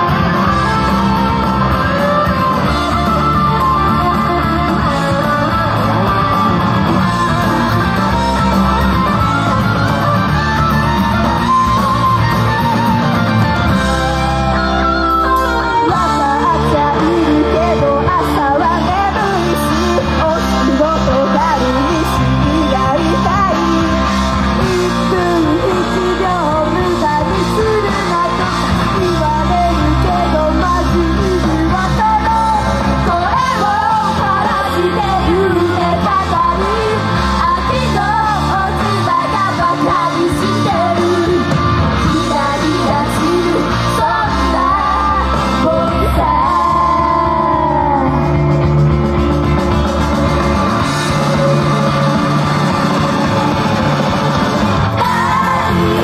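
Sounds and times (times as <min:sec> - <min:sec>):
rock band backing: 0:00.0 - 0:56.0
women singing: 0:15.6 - 0:48.3, 0:55.0 - 0:56.0.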